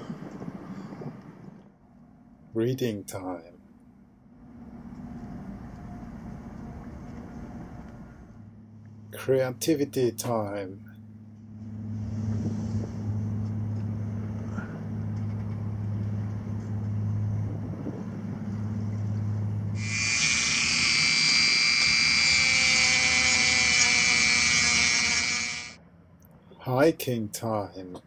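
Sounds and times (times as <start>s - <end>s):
steady low hum: 0.0s - 28.0s
rotary tool cutting wood: 19.8s - 25.8s.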